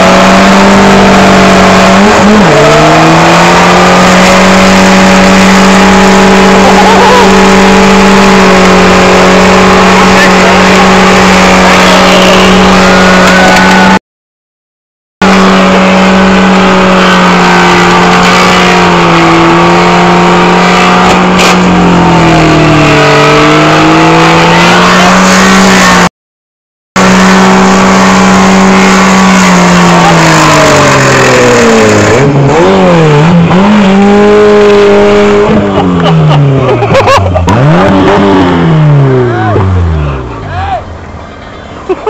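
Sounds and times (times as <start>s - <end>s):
car engine revving high: 0.0s - 14.0s, 15.2s - 26.1s, 27.0s - 41.9s
wheel rim grinding on asphalt: 0.0s - 14.0s.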